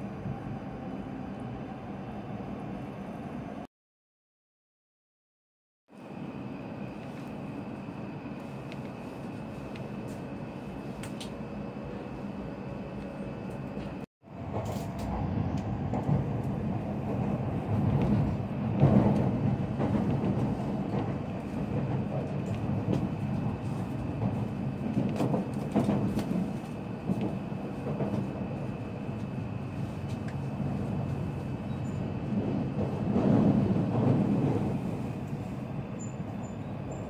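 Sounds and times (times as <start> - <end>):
train rumbling inside passenger car: 0.0 - 3.7, 5.9 - 37.0.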